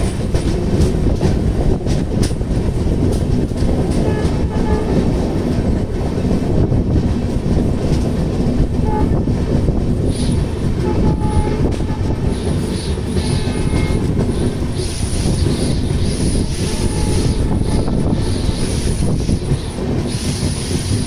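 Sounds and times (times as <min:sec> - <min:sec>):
train wheels rumbling on track: 0:00.0 - 0:21.0
wind at open doorway: 0:00.0 - 0:21.0
high wheel squeal: 0:12.4 - 0:19.3.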